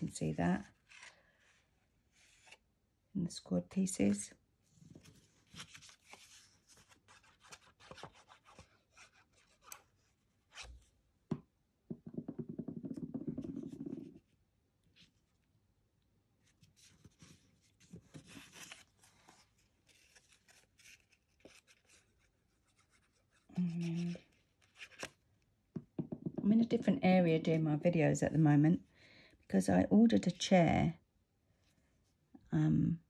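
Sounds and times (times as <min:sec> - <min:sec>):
paper rustling: 0:05.0 - 0:09.8, 0:16.5 - 0:25.2.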